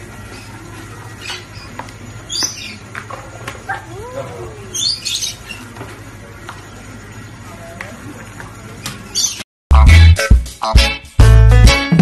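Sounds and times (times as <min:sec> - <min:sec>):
birds chirping: 0:00.0 - 0:09.5.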